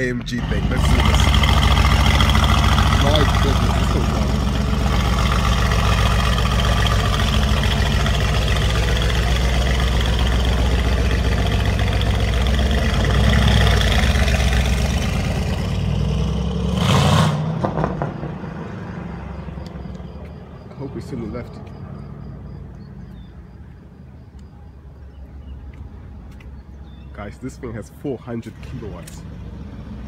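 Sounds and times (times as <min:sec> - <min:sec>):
car engine at high revs: 0:00.3 - 0:18.9
spinning tyres hissing: 0:00.4 - 0:16.2.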